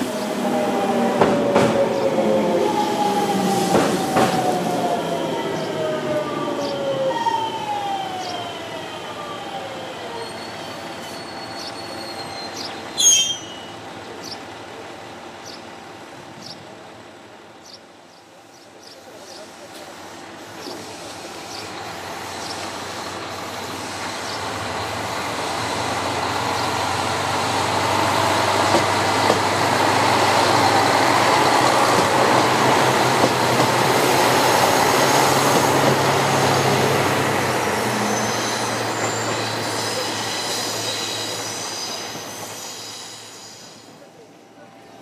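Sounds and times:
train wheel noise: 0.0 - 10.4, 19.1 - 44.3
diesel train engine drone: 0.0 - 45.0
high wheel squeal: 10.1 - 13.8, 37.8 - 44.0.

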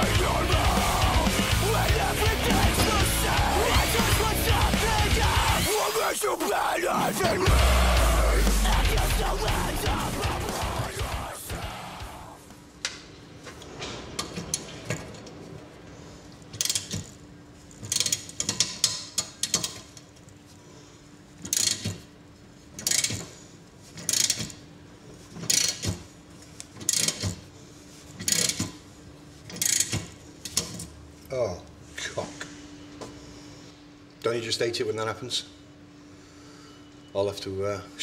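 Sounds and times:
ratchet wrench clicking: 16.6 - 17.0, 17.8 - 19.9, 21.5 - 21.9, 22.8 - 23.2, 24.0 - 24.6, 29.6 - 30.6.

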